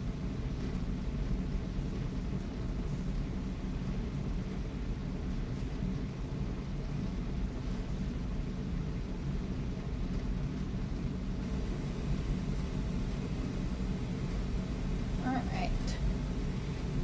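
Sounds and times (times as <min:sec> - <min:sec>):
low room rumble: 0:00.0 - 0:17.0.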